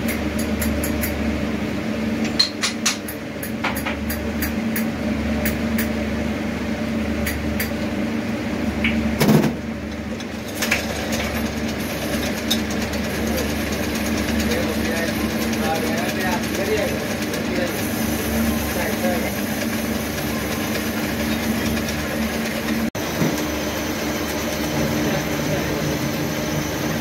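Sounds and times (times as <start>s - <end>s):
electric motor hum: 10.1s - 27.0s.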